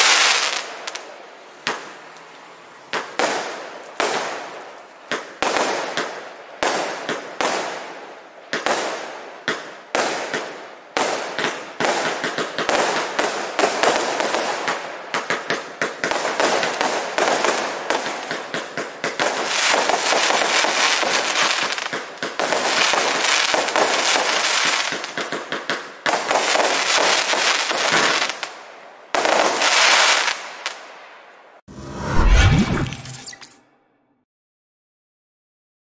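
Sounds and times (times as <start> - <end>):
fireworks firing: 0.0 - 1.0, 8.5 - 30.8.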